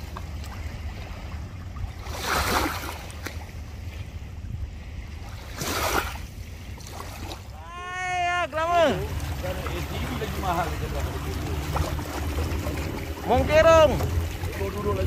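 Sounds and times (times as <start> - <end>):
small waves washing against rock: 0.0 - 4.1, 5.2 - 15.0
low rumble: 7.5 - 15.0.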